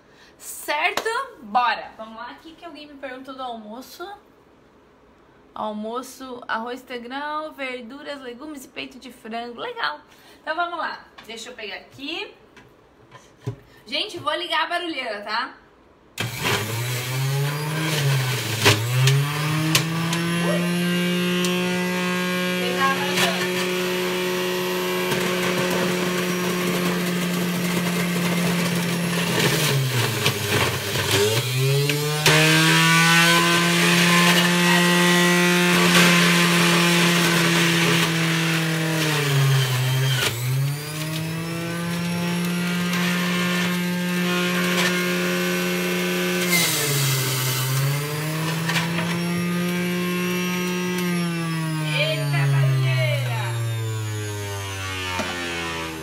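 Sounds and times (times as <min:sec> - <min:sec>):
juicer motor running: 0:16.2 - 0:56.0.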